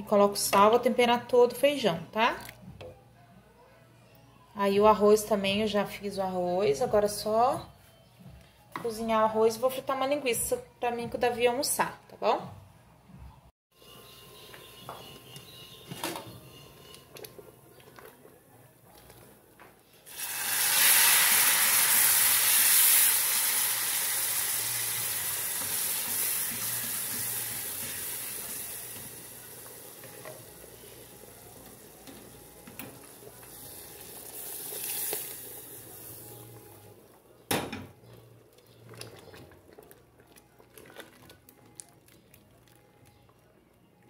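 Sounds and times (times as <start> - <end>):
food sizzling in hot oil: 20.1 - 36.6.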